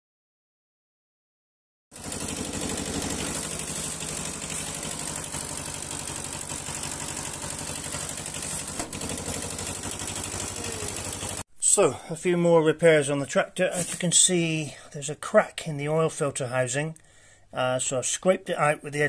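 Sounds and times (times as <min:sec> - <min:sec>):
tractor diesel engine idling: 0:02.0 - 0:11.4.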